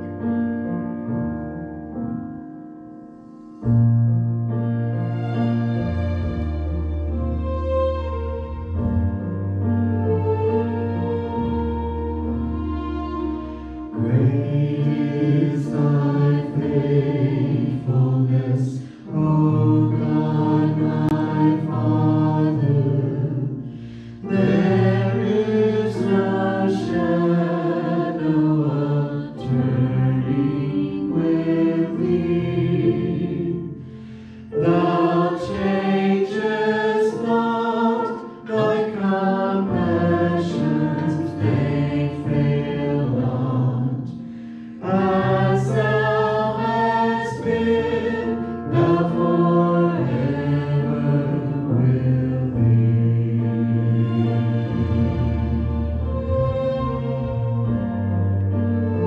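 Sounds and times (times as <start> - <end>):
vocal group singing worship song: 13.5 - 56.0.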